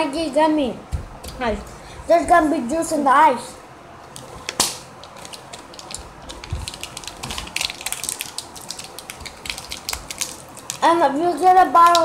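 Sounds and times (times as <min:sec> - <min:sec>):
clicks and crackles of handling: 0:11.8 - 0:12.0.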